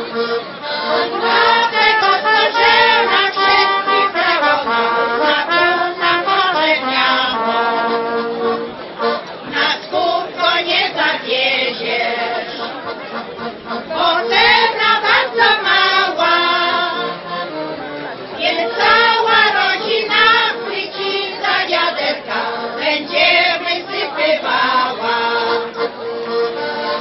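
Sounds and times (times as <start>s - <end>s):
women's choir singing unaccompanied: 0.1s - 8.0s, 9.4s - 12.9s, 13.7s - 17.7s, 18.3s - 27.0s.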